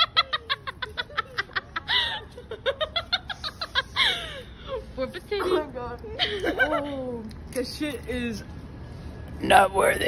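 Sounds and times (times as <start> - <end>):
people laughing hard: 0.0 - 4.5.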